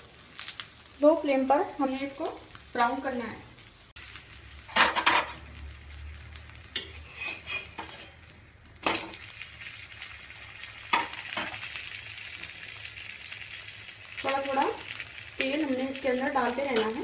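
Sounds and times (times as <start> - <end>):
patty sizzling in oil: 0.0 - 17.0
spatula scraping a griddle: 6.7 - 9.2.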